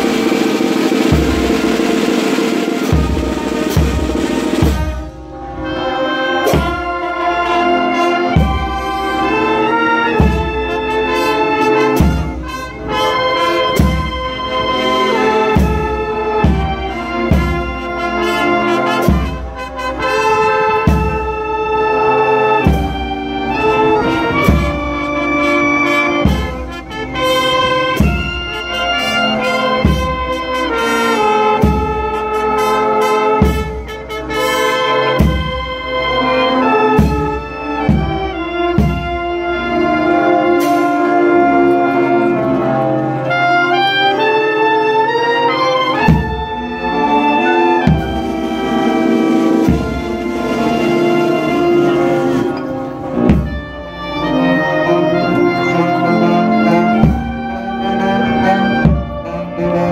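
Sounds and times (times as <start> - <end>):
steady drum beat: 0.0 - 5.2, 13.7 - 19.7, 26.2 - 28.8, 33.4 - 34.1, 37.0 - 39.4, 47.8 - 53.8, 56.8 - 57.6
cymbals: 0.0 - 59.9
marching band playing: 0.0 - 59.9.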